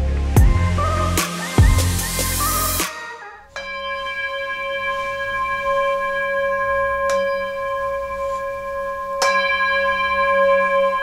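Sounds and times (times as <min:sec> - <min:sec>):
metal singing bowls ringing: 0:03.5 - 0:11.0
mallet striking bowl: 0:03.6 - 0:11.0.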